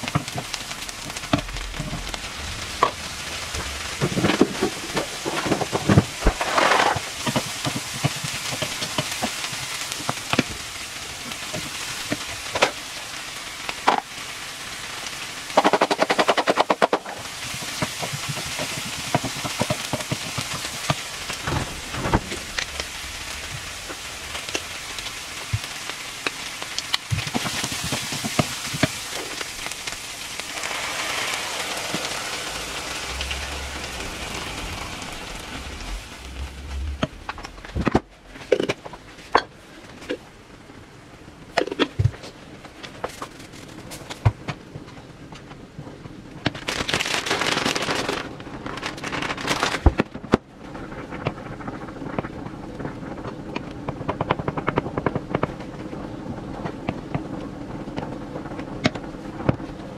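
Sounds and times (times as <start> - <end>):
shrimp and onion sizzling: 0.0 - 40.6.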